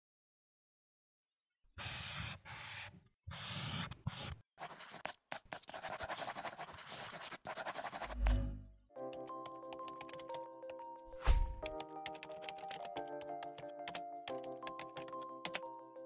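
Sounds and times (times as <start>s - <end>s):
chalk scratching on a blackboard: 1.8s - 8.4s.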